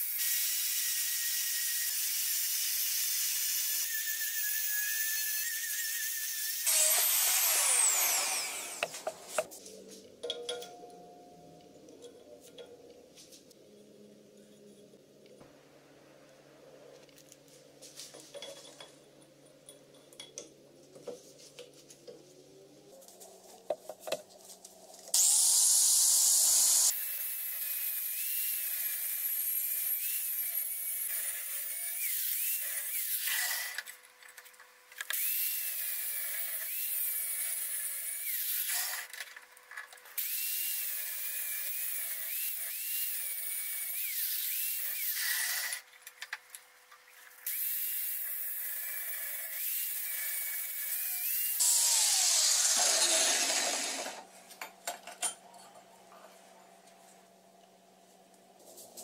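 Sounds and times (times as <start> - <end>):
angle grinder cutting steel pipe: 0.0 - 9.5, 25.2 - 33.9, 35.1 - 39.2, 40.2 - 45.8, 47.4 - 54.3.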